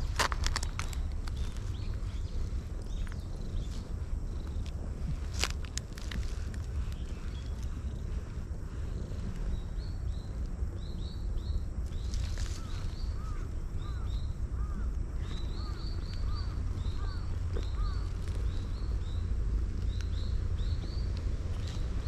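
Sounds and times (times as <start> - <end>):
small bird chirping: 0.0 - 4.8, 5.9 - 22.0
cat purring: 1.4 - 9.8.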